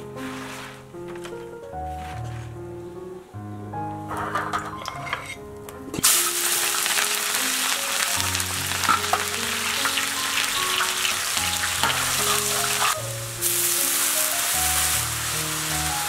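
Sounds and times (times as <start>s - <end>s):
spices sizzling in hot oil: 6.0s - 16.0s.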